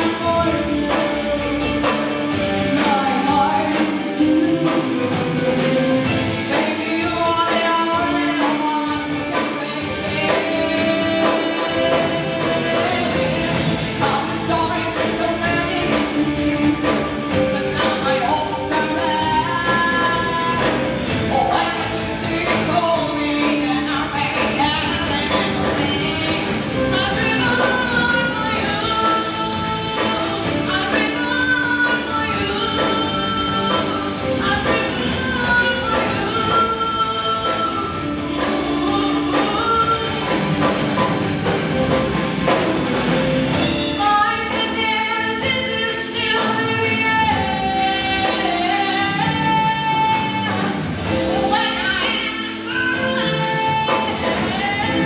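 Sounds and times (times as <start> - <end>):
woman singing into a microphone: 0.0 - 41.9, 43.6 - 55.0
drum kit and cymbals: 0.0 - 55.0
keyboard: 0.0 - 55.0.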